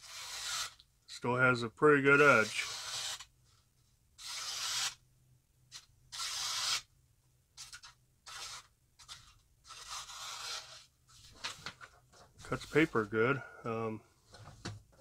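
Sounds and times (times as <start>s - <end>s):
knife blade slicing paper: 6.2s - 6.9s, 7.6s - 11.6s.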